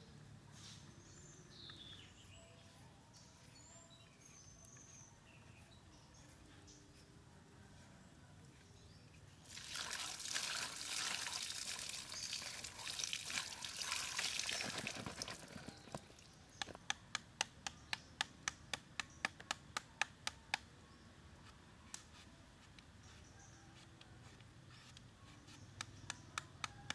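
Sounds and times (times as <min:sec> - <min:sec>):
water pouring and splashing: 0:09.4 - 0:16.3.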